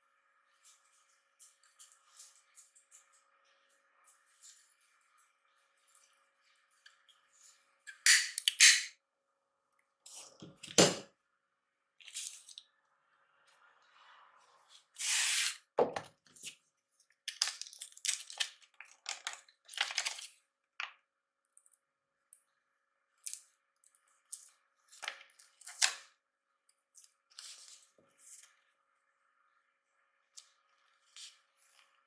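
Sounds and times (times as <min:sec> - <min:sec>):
paper leaflet rustling: 0:19.1 - 0:20.3.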